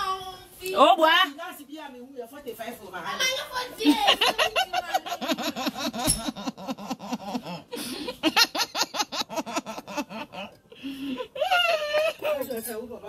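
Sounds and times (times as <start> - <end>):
woman laughing: 3.8 - 12.6.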